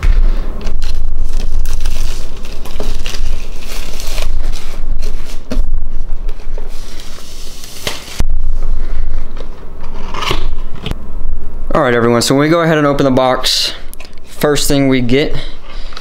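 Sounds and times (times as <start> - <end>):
low handling rumble: 0.0 - 3.8
plastic packaging crinkling: 0.7 - 8.2.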